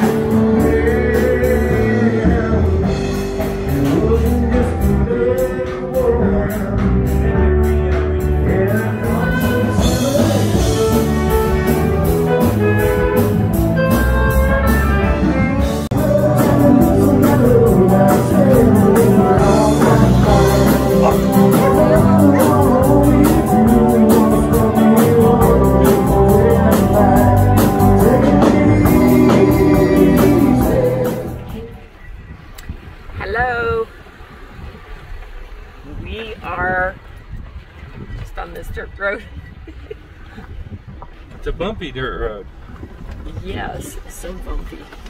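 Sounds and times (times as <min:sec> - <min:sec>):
drum kit beat: 0:00.0 - 0:31.6
electric guitars: 0:00.0 - 0:32.1
music with singing: 0:00.0 - 0:32.1.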